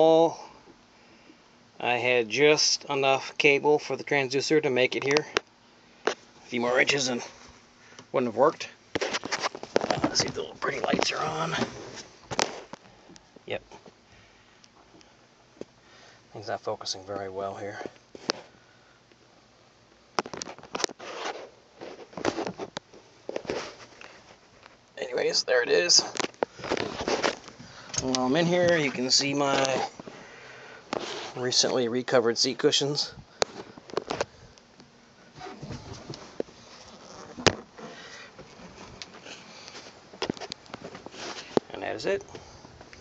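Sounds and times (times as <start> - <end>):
scrapes and rustles: 8.6 - 12.8, 20.2 - 24.8, 25.9 - 30.2, 30.9 - 31.8, 35.2 - 41.7.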